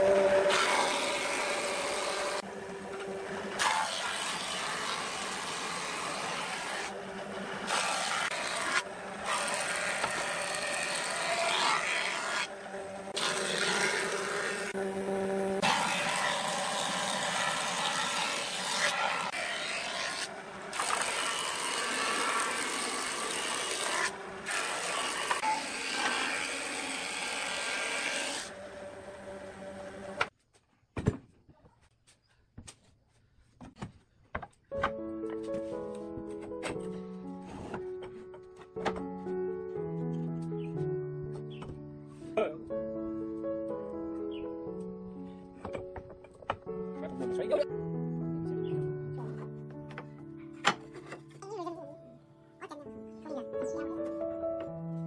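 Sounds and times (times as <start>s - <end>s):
circular saw ripping wood: 0.0s - 14.8s, 15.4s - 28.6s
planer shaving boards: 0.0s - 30.3s.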